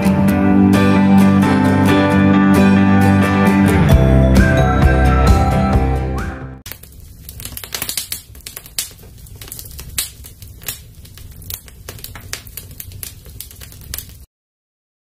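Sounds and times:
fire crackling and popping: 0:06.6 - 0:14.3.

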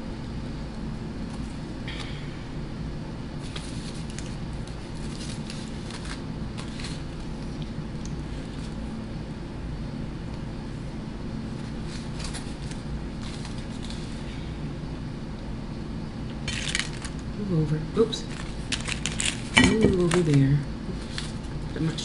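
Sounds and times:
air conditioner humming: 0:00.0 - 0:22.0
aluminium foil crinkling: 0:03.4 - 0:08.9, 0:11.5 - 0:14.3, 0:16.4 - 0:22.0.

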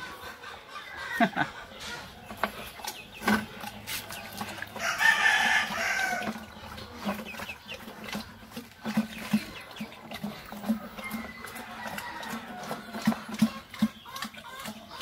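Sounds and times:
pig chewing and smacking: 0:02.3 - 0:15.0
rooster crowing: 0:04.8 - 0:06.3, 0:11.0 - 0:13.0.

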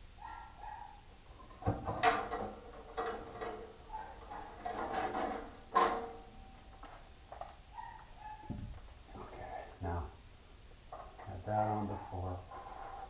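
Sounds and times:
metal scraping: 0:01.4 - 0:06.9, 0:12.5 - 0:13.0.

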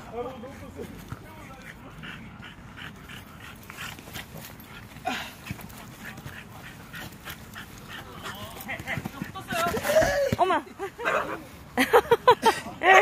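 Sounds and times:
dog panting: 0:00.0 - 0:09.7.

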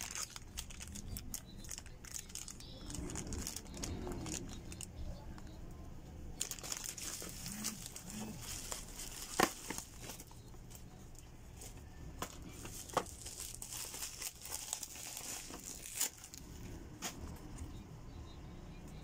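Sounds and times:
plastic packaging crinkling: 0:00.0 - 0:04.9, 0:06.4 - 0:10.4, 0:12.2 - 0:16.4.

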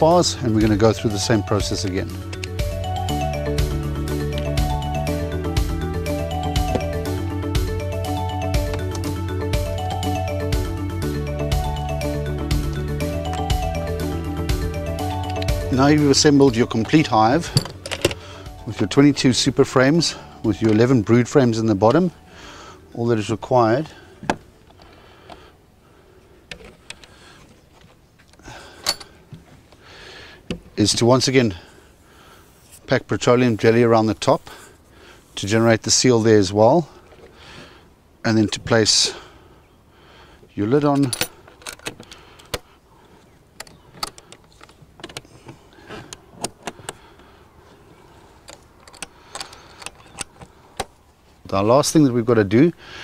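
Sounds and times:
plastic parts clicking and knocking: 0:17.5 - 0:18.2, 0:26.5 - 0:27.2, 0:40.9 - 0:42.7, 0:43.6 - 0:47.0, 0:48.4 - 0:51.0.

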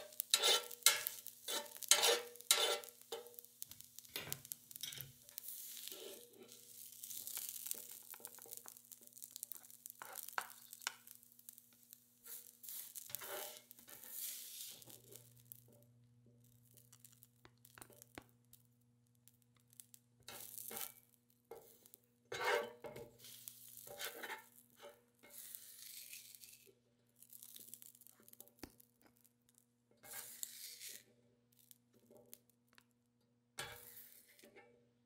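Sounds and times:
spatula scraping a griddle: 0:00.0 - 0:11.2, 0:12.2 - 0:15.6, 0:20.2 - 0:28.4, 0:30.0 - 0:31.2, 0:33.6 - 0:34.8.

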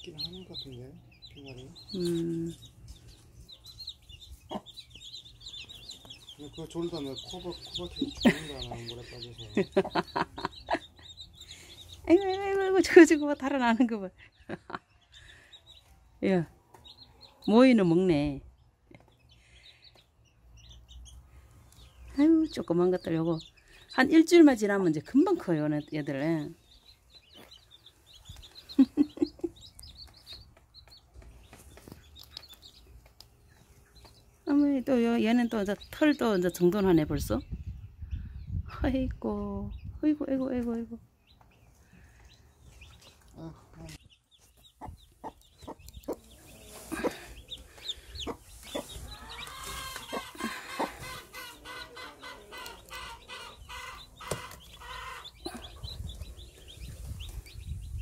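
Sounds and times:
chicks peeping: 0:00.0 - 0:58.0
hen clucking: 0:03.5 - 0:13.0, 0:44.6 - 0:57.6.

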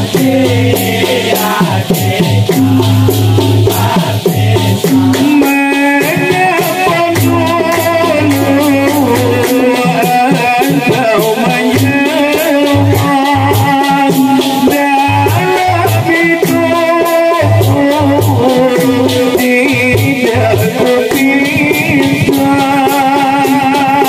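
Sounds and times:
frame drums beating: 0:00.0 - 0:24.0
hand percussion rattle: 0:00.0 - 0:24.0
lead singer on microphone: 0:00.0 - 0:24.0
male chorus singing: 0:00.0 - 0:24.0.

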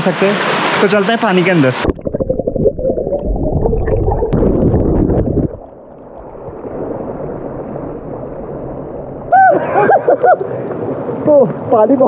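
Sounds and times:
river water churning and gurgling: 0:00.0 - 0:12.0.

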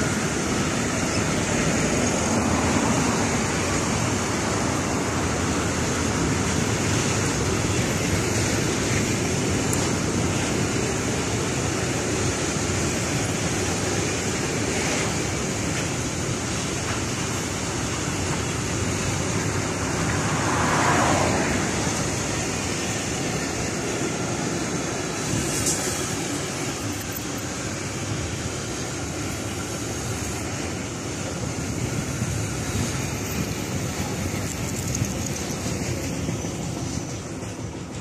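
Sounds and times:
freight train rumbling: 0:00.0 - 0:38.0
car driving past: 0:19.8 - 0:22.2.

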